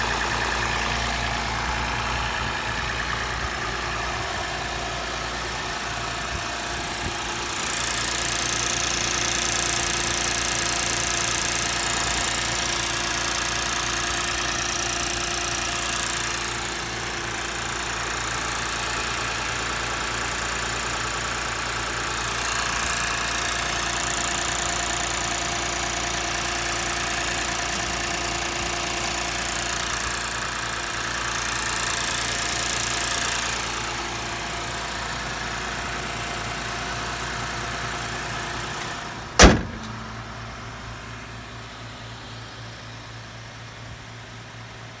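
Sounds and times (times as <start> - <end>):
car engine idling: 0.0 - 45.0
bonnet slamming shut: 39.4 - 40.0.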